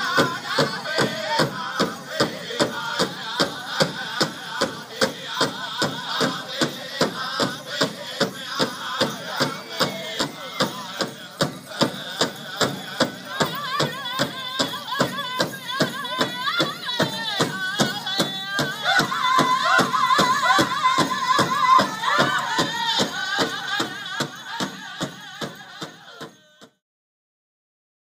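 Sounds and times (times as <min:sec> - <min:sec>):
steady drumbeat: 0:00.0 - 0:26.5
high wavering singing: 0:06.1 - 0:26.2.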